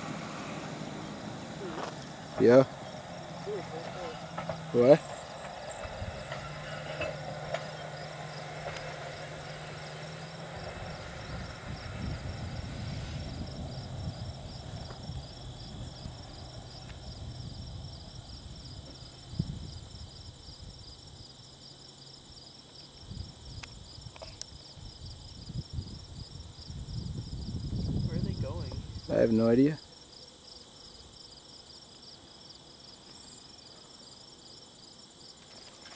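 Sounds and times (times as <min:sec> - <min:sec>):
crickets chirping: 0:00.0 - 0:35.9
high insect trill: 0:00.0 - 0:35.9.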